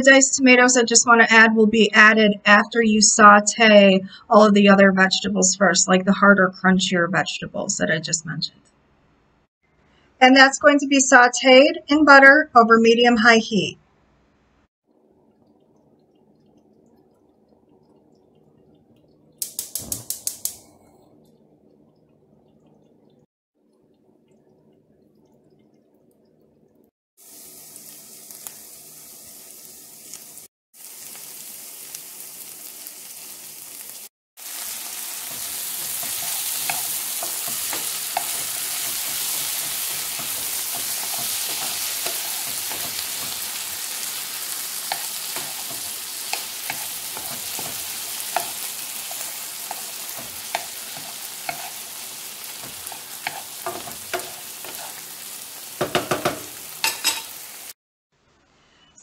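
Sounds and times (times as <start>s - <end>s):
vegetables sizzling in a pan: 27.2s - 57.8s
spatula scraping and clicking on pan: 34.6s - 57.5s.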